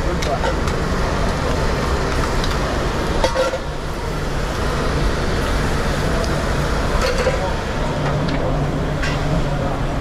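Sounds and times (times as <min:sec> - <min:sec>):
low rumble of kitchen equipment: 0:00.0 - 0:10.0
pans and utensils clinking: 0:03.2 - 0:03.7, 0:07.0 - 0:08.2, 0:09.0 - 0:09.4.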